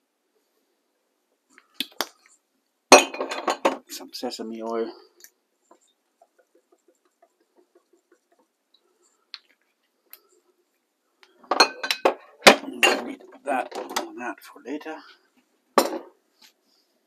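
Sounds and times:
glass and utensils clattering: 2.9 - 3.8, 11.4 - 14.2, 15.8 - 16.1.

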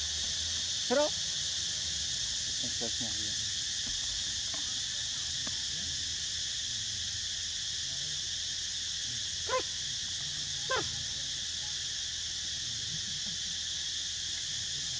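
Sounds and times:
insects droning: 0.0 - 14.9
short animal calls: 9.5 - 9.7, 10.7 - 10.9.

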